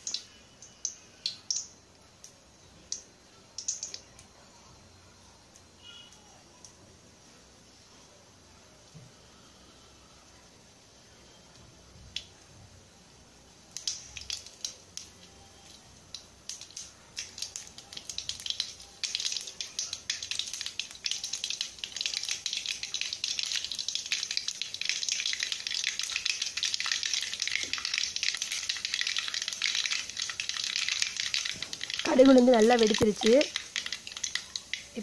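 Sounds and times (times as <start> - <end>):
seeds popping in hot oil: 0.0 - 4.4, 11.5 - 12.4, 13.5 - 35.0.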